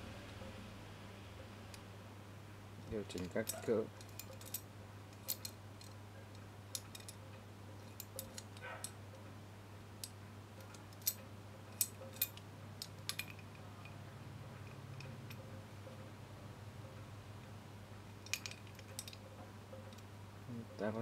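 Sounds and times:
steady low hum: 0.0s - 21.0s
metal tool clicking and clinking: 3.1s - 6.0s, 6.7s - 9.0s, 10.0s - 14.0s, 18.1s - 20.0s.

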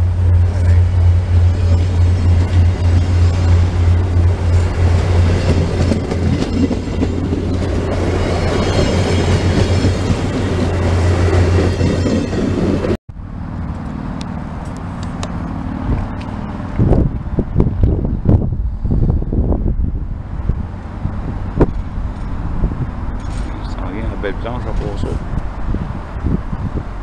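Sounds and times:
train passing at speed: 0.0s - 27.0s
wheels clacking over rail joints: 0.2s - 13.0s.

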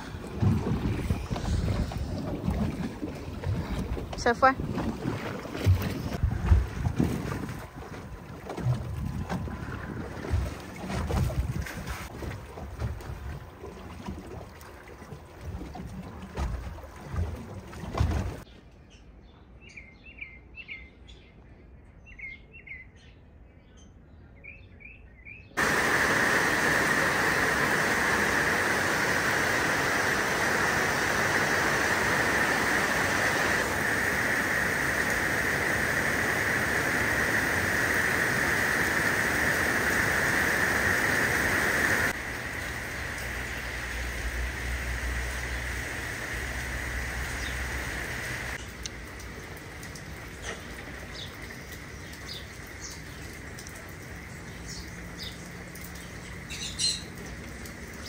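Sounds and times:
heavy rain on trees and leaves: 0.0s - 0.3s, 25.6s - 58.0s
wind buffeting microphone: 0.0s - 13.6s
choppy water: 0.0s - 18.5s, 25.6s - 58.0s.

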